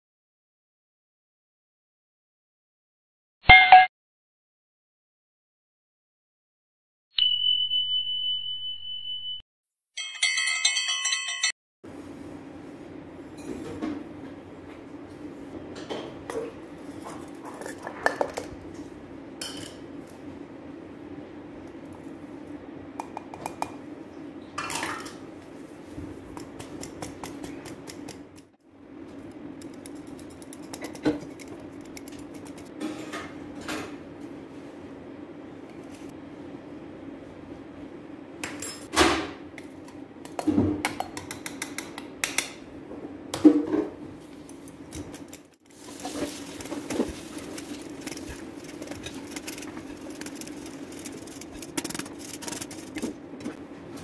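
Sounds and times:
high ding: 3.5 - 3.9, 7.2 - 9.4
jingling bell ringing: 10.0 - 11.6
flour sifter clicking and rasping: 29.6 - 32.7, 44.3 - 53.2.

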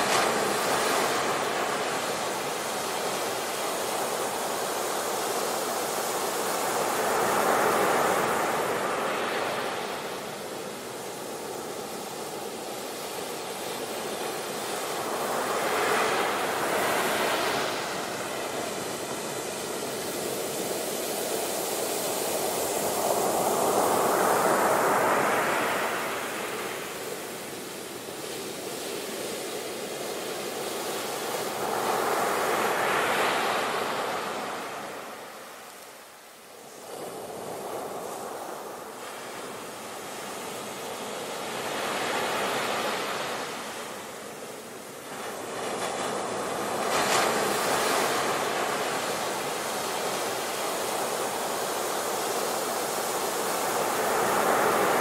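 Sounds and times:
waves breaking on beach: 0.0 - 55.0.

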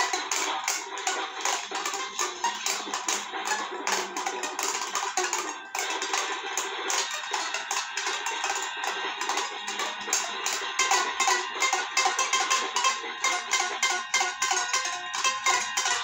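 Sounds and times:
toy ukulele strummed quickly: 0.0 - 16.0.

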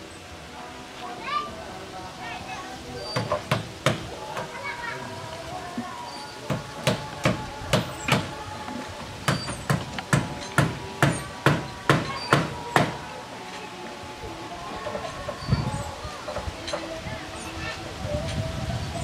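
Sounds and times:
hammer striking wooden plank: 3.2 - 4.1, 9.3 - 13.0.

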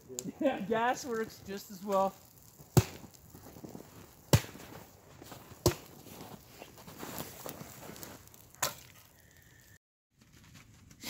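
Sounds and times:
soft small crackles: 0.0 - 11.0
axe chopping wood: 2.7 - 3.2, 4.3 - 4.7, 5.6 - 5.9.

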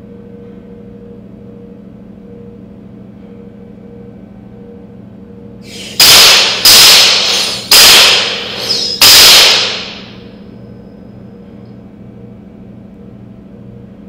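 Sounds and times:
toy cap gun shots: 5.7 - 10.2.

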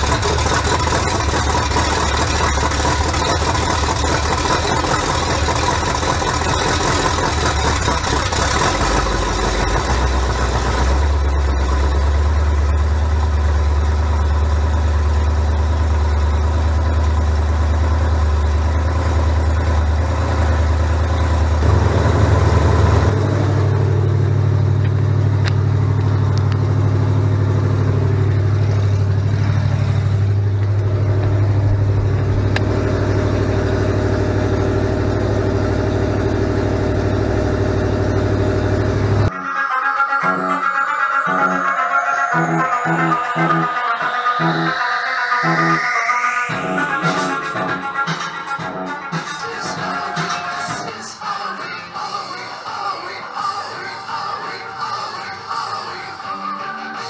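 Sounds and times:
car engine idling: 0.0 - 39.3.

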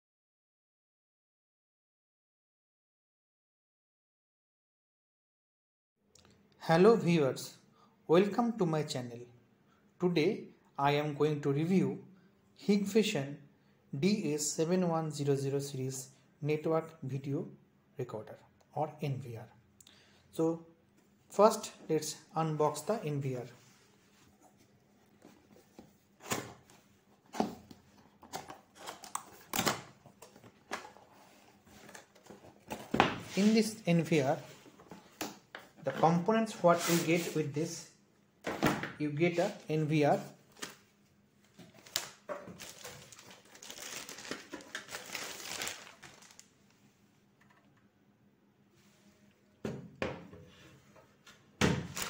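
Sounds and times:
plastic bag crinkling: 41.6 - 46.5.

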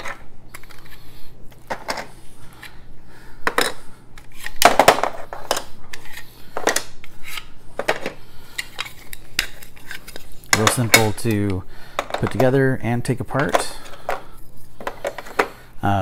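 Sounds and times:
plastic pieces clacking: 3.4 - 12.6, 13.4 - 15.6.

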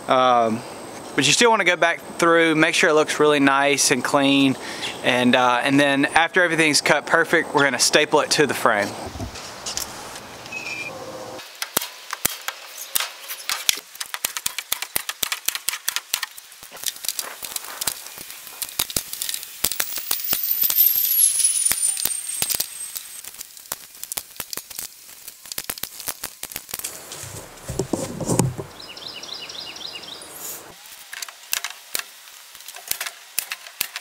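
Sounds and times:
high tone sliding downward: 19.9 - 23.2.

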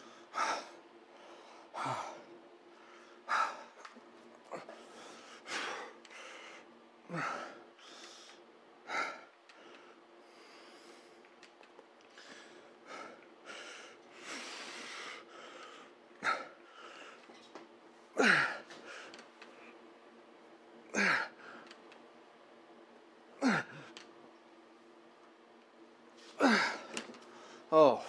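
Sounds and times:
man breathing hard: 0.0 - 3.8, 4.5 - 11.2, 12.1 - 17.4.

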